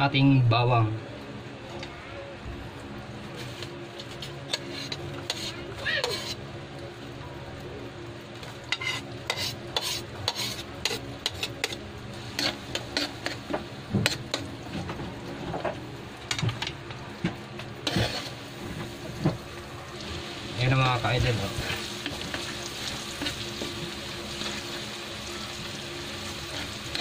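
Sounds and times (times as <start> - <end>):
garlic frying in a wok: 3.1 - 27.0
metal spoon scraping and clinking: 4.5 - 6.4, 8.7 - 11.8.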